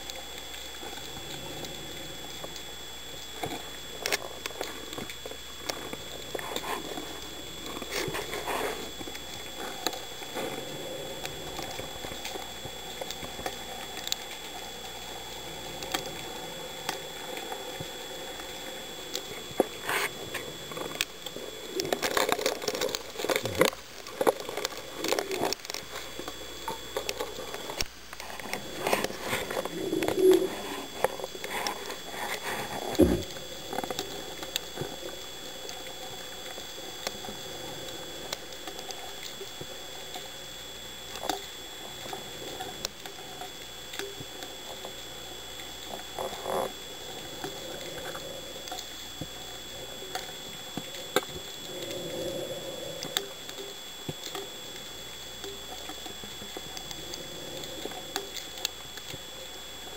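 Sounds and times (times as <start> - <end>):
faint high whine: 0.0 - 59.9
underwater hiss: 28.4 - 40.2, 44.6 - 55.0, 55.7 - 59.7.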